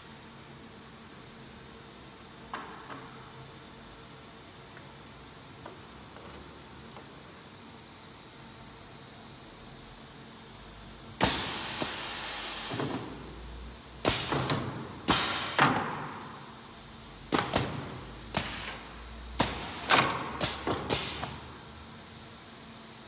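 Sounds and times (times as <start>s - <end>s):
hiss of exhausting air: 7.4s - 23.0s
pneumatic actuator clacks: 11.2s - 13.2s, 14.0s - 16.1s, 17.3s - 21.5s.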